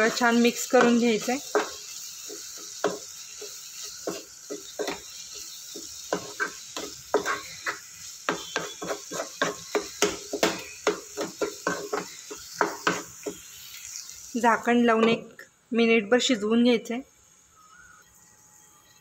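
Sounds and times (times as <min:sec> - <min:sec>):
wooden spatula scraping a pan: 0:00.0 - 0:13.6
spices sizzling: 0:00.0 - 0:19.0.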